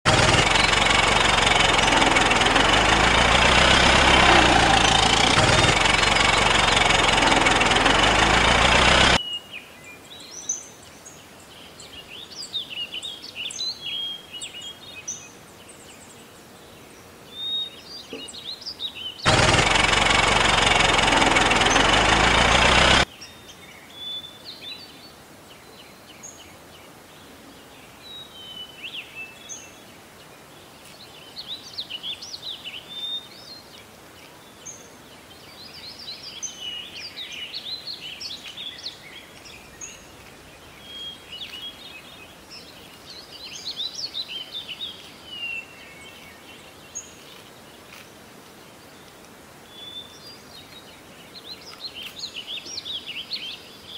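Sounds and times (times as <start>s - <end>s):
birds chirping: 0.0s - 9.2s, 17.4s - 23.1s
loud engine-like noise: 0.0s - 9.2s, 19.3s - 23.1s.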